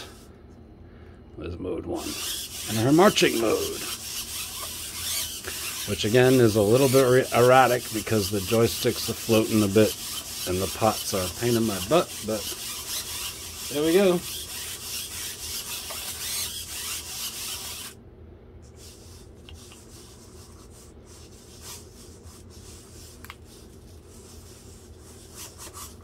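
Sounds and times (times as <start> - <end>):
robot servo motors whirring: 2.0 - 18.0.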